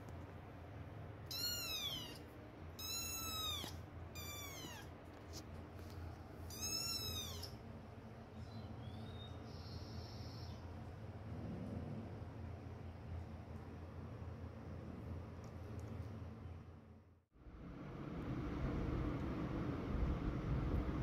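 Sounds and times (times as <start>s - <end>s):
kitten meowing: 1.3s - 2.2s, 2.8s - 4.9s, 6.5s - 7.6s.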